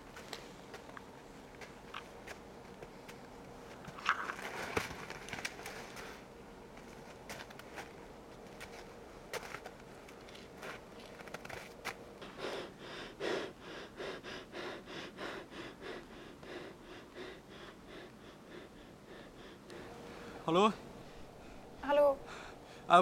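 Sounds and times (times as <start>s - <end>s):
man panting: 12.2s - 20.5s.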